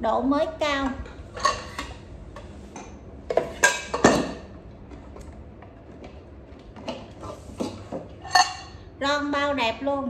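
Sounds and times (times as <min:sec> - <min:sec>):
metal pot and lid clanking: 0:01.0 - 0:02.0, 0:03.3 - 0:04.5, 0:07.6 - 0:08.8.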